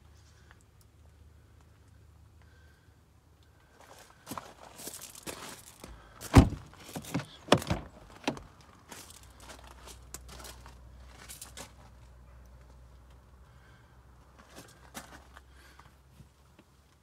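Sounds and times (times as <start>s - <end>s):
car door latch clunk: 6.3s - 8.4s.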